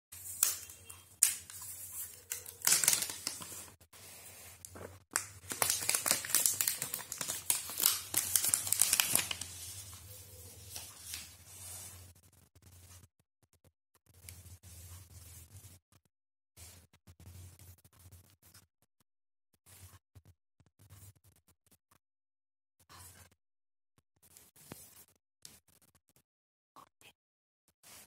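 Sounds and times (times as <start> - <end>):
plastic wrap crinkling: 1.2 - 3.8, 4.6 - 10.0.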